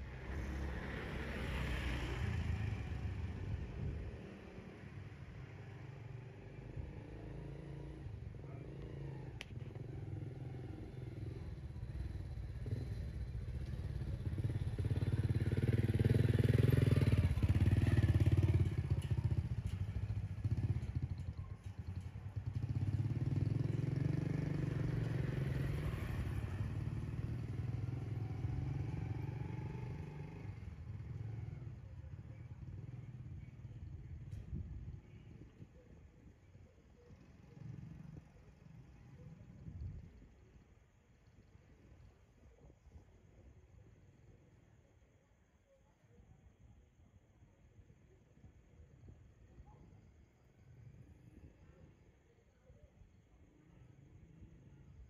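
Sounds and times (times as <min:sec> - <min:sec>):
small motorcycle engine passing: 0:00.0 - 0:36.4.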